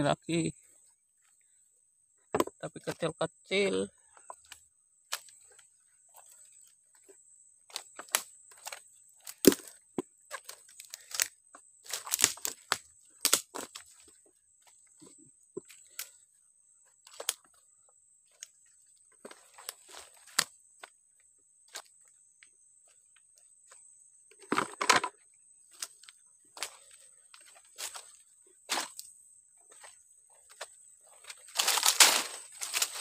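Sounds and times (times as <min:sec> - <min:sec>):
dry twigs and leaves crunching: 0:04.0 - 0:21.0, 0:25.7 - 0:33.0.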